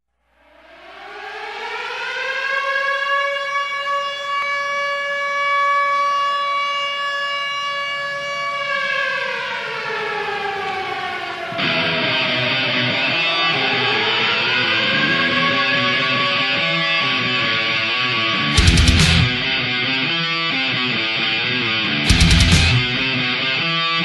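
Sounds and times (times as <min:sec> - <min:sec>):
air-raid siren wailing: 0:00.2 - 0:24.0
electric guitar: 0:11.5 - 0:24.0.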